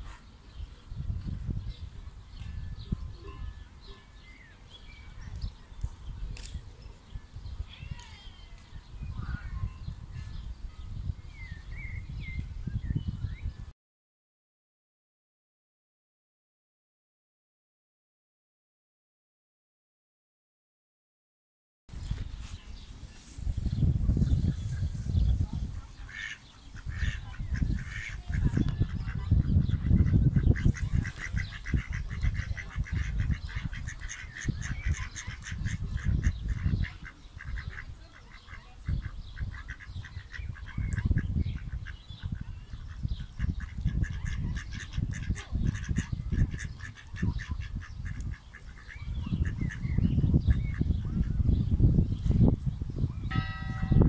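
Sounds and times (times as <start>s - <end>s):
wind rumble on microphone: 0.0s - 13.7s, 21.9s - 54.0s
ducks calling: 25.9s - 51.4s.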